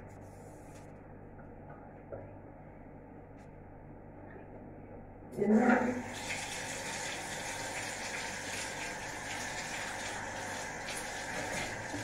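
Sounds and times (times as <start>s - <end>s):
shower water spraying: 5.9s - 12.0s.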